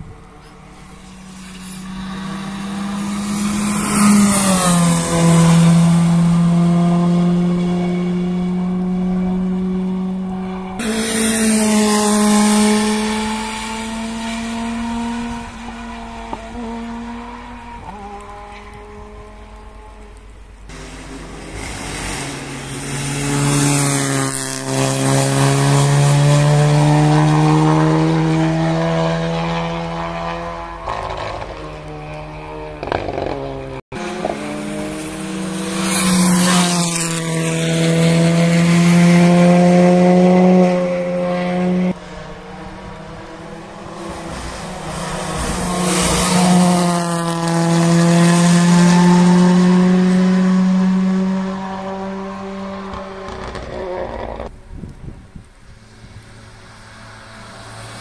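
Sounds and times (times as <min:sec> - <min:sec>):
rally cars passing at high revs: 0:00.0 - 0:58.0.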